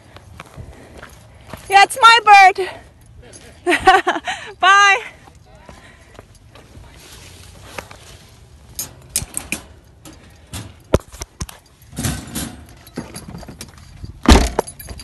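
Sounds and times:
wire cage rattling and clicking: 8.7 - 15.0.

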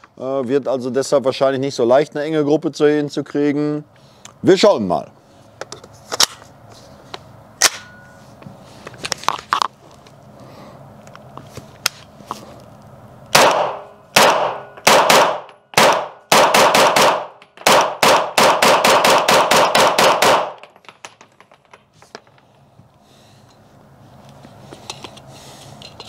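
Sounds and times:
pistol shots ringing: 13.3 - 20.7.

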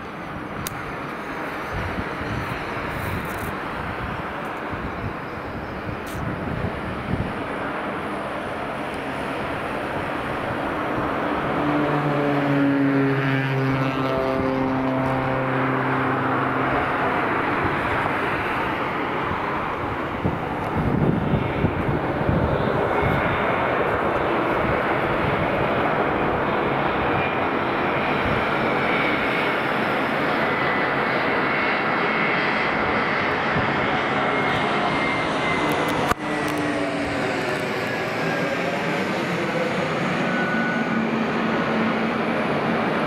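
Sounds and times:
jet engines roaring: 0.0 - 43.0
faint high whine: 39.4 - 42.2.

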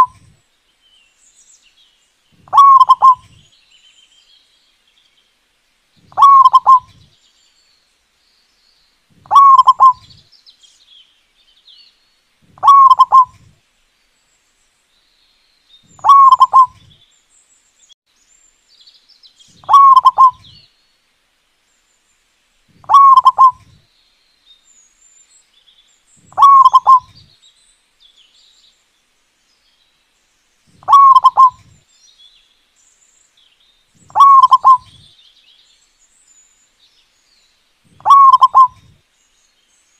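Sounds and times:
dove cooing: 0.0 - 0.2, 2.4 - 3.4, 6.1 - 7.1, 9.2 - 10.2, 12.5 - 13.5, 16.0 - 16.9, 19.6 - 20.6, 22.8 - 23.8, 26.3 - 27.3, 30.8 - 31.8, 34.0 - 35.1, 37.9 - 39.0
faint high chirps: 0.0 - 0.4, 2.4 - 3.5, 6.0 - 7.1, 9.2 - 10.2, 12.5 - 13.5, 15.8 - 17.0, 19.5 - 20.6, 22.7 - 23.8, 26.2 - 27.3, 30.7 - 31.8, 34.0 - 35.2, 37.9 - 39.0.

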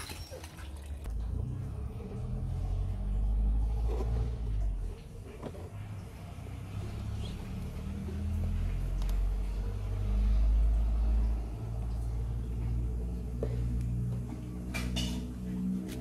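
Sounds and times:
vehicle engine rumbling: 0.0 - 16.0.

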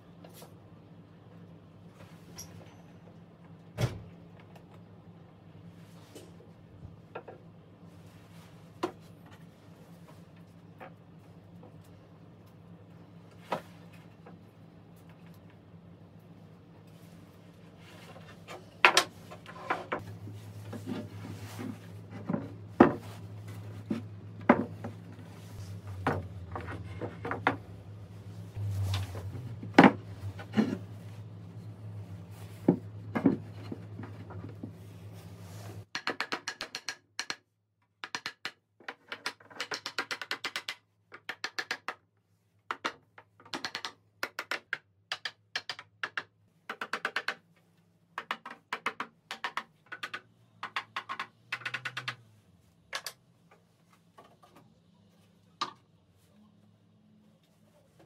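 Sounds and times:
low steady hum: 0.0 - 35.9
wooden knocks and clunks: 20.7 - 23.1, 23.8 - 25.0, 25.8 - 27.8, 32.6 - 34.8.

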